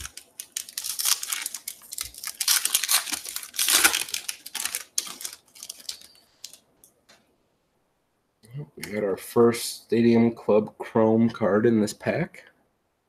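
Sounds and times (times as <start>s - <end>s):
foil wrapper tearing and crinkling: 0.0s - 6.6s.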